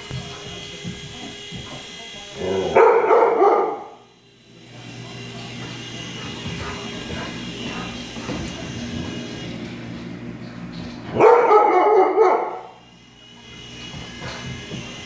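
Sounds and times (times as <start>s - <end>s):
toy helicopter motor whine: 0.0s - 9.7s, 12.4s - 15.0s
dog barking loudly: 2.8s - 4.0s, 11.2s - 12.7s.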